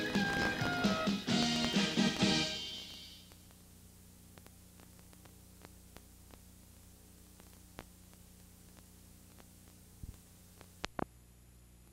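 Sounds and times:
faint hiss: 0.0s - 11.1s
low electrical hum: 0.0s - 11.9s
faint clicks: 4.3s - 11.1s.

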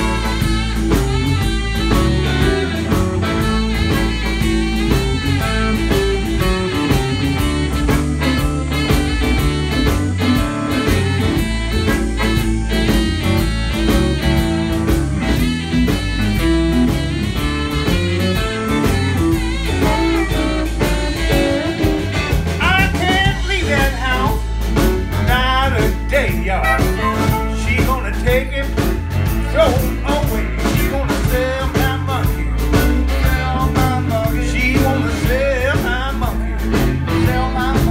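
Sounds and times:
live blues band playing: 0.0s - 37.9s
person singing: 19.6s - 24.6s, 25.2s - 37.9s.

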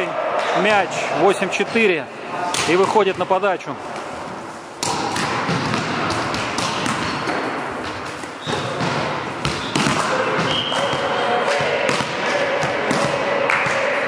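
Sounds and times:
players' voices: 0.0s - 14.0s.

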